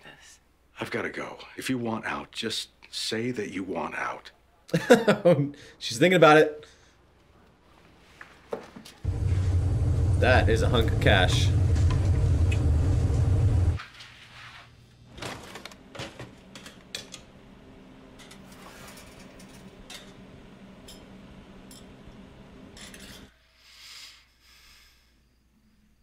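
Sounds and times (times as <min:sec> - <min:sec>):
faint steady hum: 0:09.0 - 0:13.8
loud low rumble: 0:09.0 - 0:13.8.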